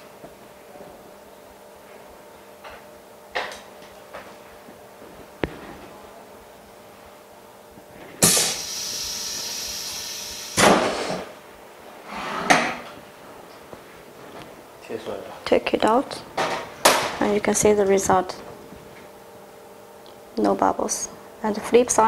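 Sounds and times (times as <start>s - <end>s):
air hissing: 8.2s - 11.3s.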